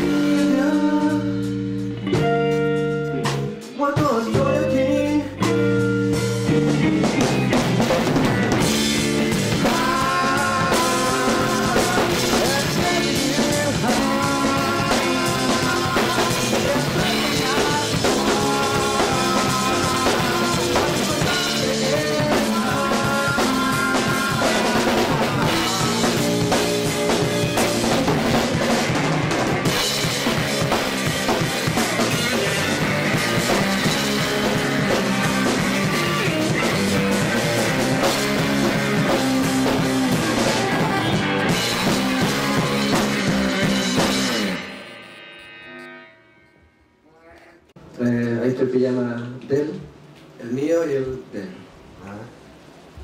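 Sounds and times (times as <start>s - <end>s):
person singing into a microphone: 0.0s - 1.4s, 3.7s - 5.5s, 9.4s - 26.5s, 39.7s - 44.3s
drum kit: 0.0s - 46.4s
electric bass: 0.0s - 47.1s
electric guitar: 0.0s - 48.0s.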